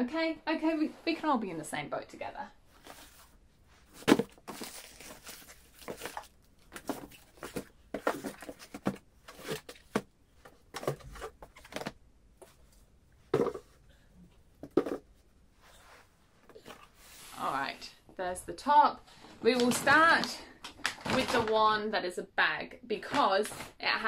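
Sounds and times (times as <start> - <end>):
cardboard packages rustling: 2.7 - 13.8, 19.1 - 21.7
books knocking on wooden shelf: 13.3 - 13.8, 14.6 - 15.0.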